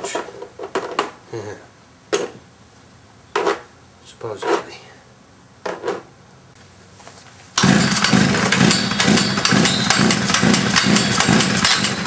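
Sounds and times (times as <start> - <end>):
engine cranking chug: 7.6 - 12.0.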